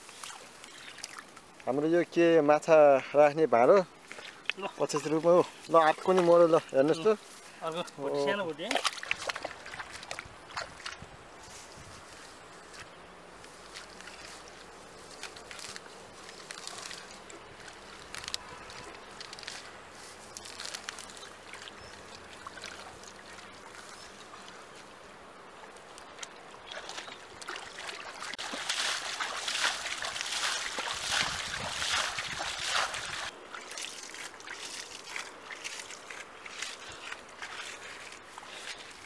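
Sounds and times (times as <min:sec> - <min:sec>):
water sloshing and splashing: 0:08.6 - 0:11.0, 0:20.5 - 0:24.6, 0:26.1 - 0:39.0.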